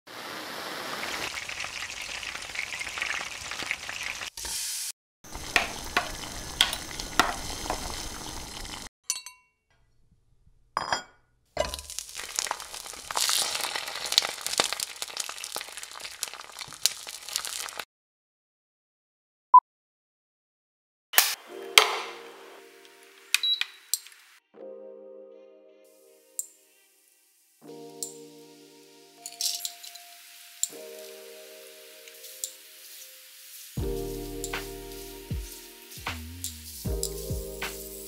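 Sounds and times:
crackling hiss with sharp clicks: 0:05.3 - 0:08.9, 0:11.9 - 0:17.8, 0:22.8 - 0:24.4, 0:26.3 - 0:26.6, 0:27.9 - 0:28.4, 0:29.1 - 0:38.0.

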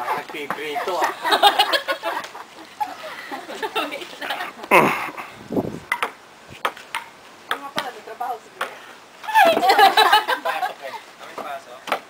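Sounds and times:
voices: 0:00.0 - 0:05.4, 0:07.5 - 0:12.0
person crying out: 0:04.7 - 0:05.1.

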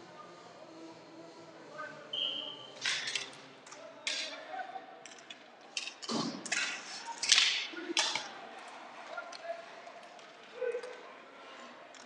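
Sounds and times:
hockey sticks clacking: 0:02.8 - 0:11.1.

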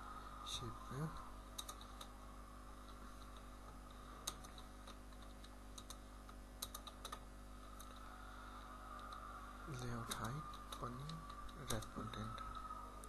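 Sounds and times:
low electrical hum: 0:00.0 - 0:13.0
faint keyboard typing: 0:01.5 - 0:02.2, 0:02.8 - 0:08.2, 0:08.8 - 0:13.0.

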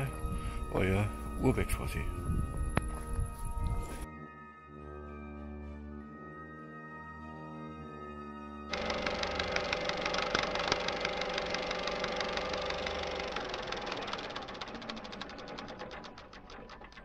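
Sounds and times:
projector running hum: 0:08.7 - 0:16.6
film projector clattering: 0:08.7 - 0:17.0.

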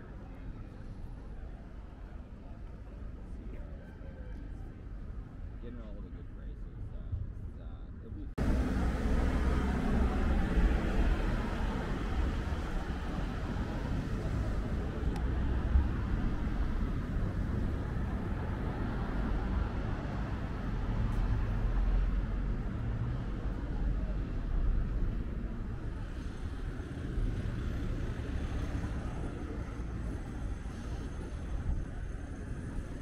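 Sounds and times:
cars driving past: 0:08.4 - 0:31.7.

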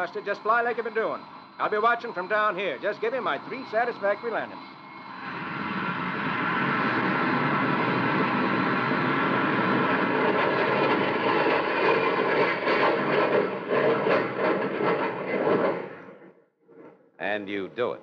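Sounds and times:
jet engine rushing: 0:00.0 - 0:16.0.

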